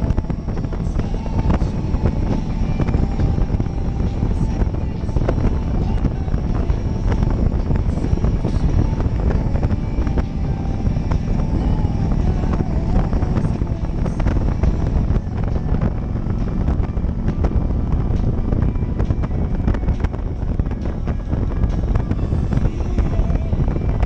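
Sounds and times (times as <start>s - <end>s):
heavy wind noise: 0.0s - 24.0s
motorcycle engine cruising: 0.0s - 24.0s.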